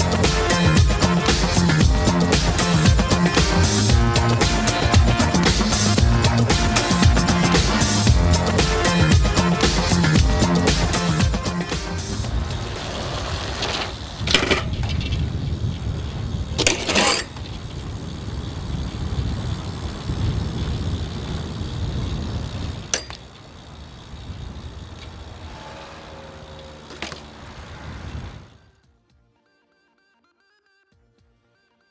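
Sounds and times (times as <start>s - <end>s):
bike clanking metallically: 0.0s - 28.6s
bike tyres rolling on stone: 0.1s - 28.6s.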